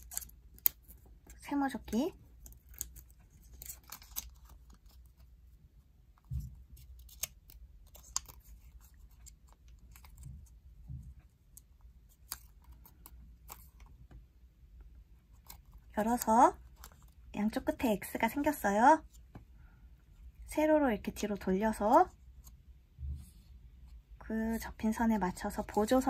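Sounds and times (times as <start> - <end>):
paper rustling and crackling: 0.0 - 5.4, 6.2 - 11.2.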